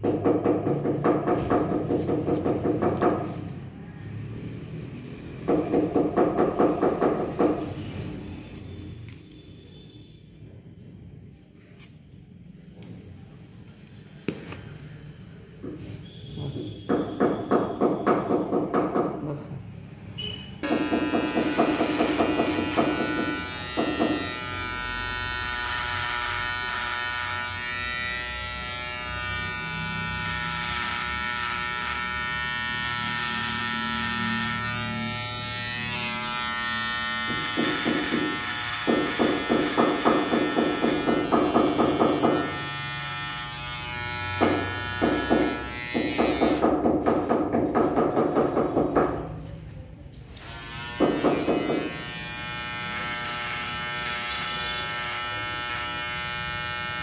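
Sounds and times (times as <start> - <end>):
electric hair trimmer buzzing: 20.6 - 46.7, 50.4 - 57.0.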